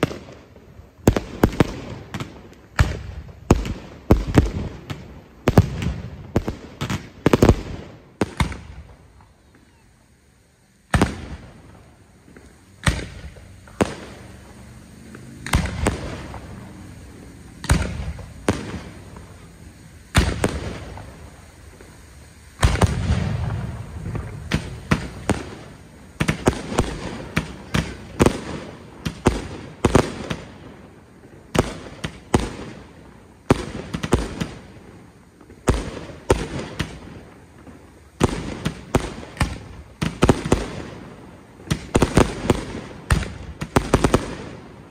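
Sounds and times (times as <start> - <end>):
fireworks bursting with echo: 0.0 - 44.9.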